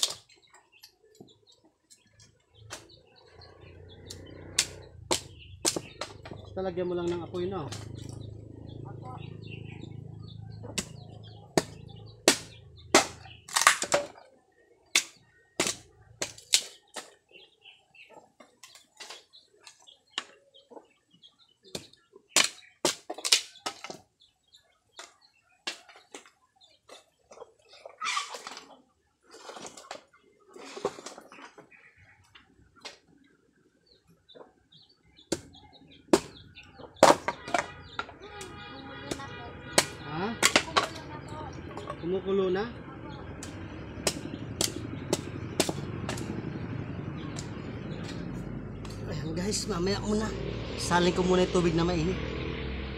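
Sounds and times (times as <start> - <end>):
knife chopping bamboo: 4.5 - 6.4, 10.7 - 14.1, 15.0 - 17.2, 21.7 - 24.0, 35.3 - 36.4, 39.1 - 41.0, 43.4 - 46.3.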